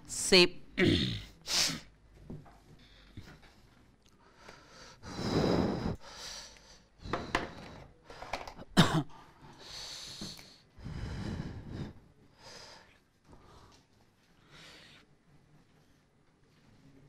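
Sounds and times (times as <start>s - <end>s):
person breathing and sniffing: 4.3s - 8.6s, 9.5s - 13.8s.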